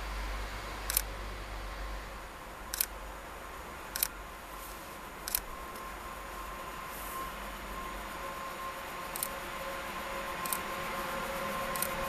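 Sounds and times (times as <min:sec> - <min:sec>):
sharp double clicks: 0:00.8 - 0:01.1, 0:02.7 - 0:03.0, 0:03.9 - 0:04.2, 0:05.2 - 0:05.5, 0:09.1 - 0:09.4, 0:10.4 - 0:10.7, 0:11.7 - 0:12.0
electric locomotive whine: 0:03.1 - 0:12.0.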